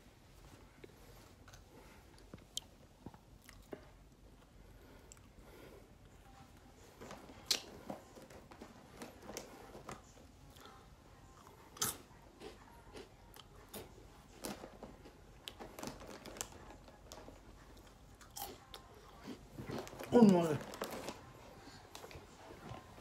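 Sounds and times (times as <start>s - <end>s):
person chewing crunchy food: 3.3s - 3.8s, 10.5s - 13.9s, 17.8s - 20.9s.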